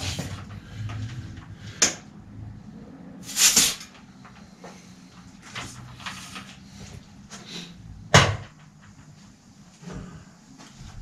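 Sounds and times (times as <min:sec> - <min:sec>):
air hissing: 0:03.2 - 0:04.0.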